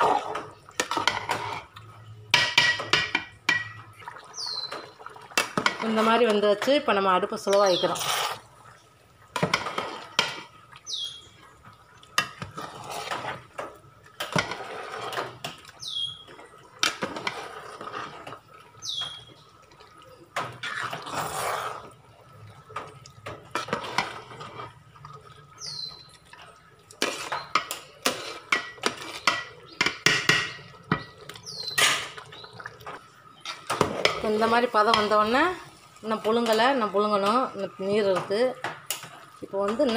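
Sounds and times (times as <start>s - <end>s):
spoon knocking and scraping pot: 0.0s - 1.7s, 2.3s - 3.9s, 4.6s - 8.4s, 9.4s - 10.5s, 12.2s - 15.7s, 22.8s - 24.7s, 27.0s - 32.2s, 32.9s - 35.4s
wet swishing of rice and water: 7.6s - 29.3s.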